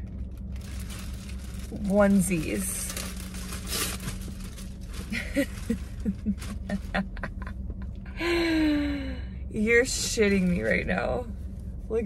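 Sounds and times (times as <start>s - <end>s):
steady low hum: 0.0s - 12.0s
packaging rustling and crinkling: 0.2s - 6.8s.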